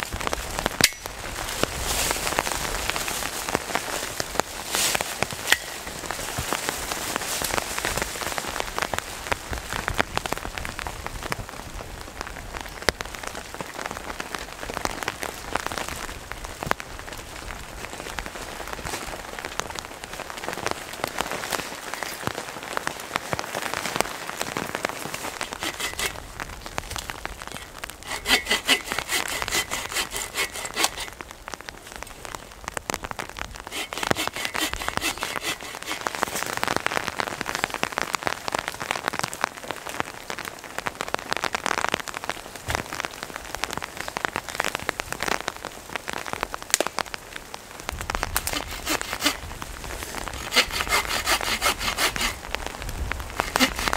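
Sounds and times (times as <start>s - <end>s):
steady rain falling: 0.0s - 53.9s
hand saw cutting a log: 25.5s - 26.2s, 27.5s - 31.2s, 33.7s - 36.5s, 48.3s - 52.4s, 53.3s - 53.9s.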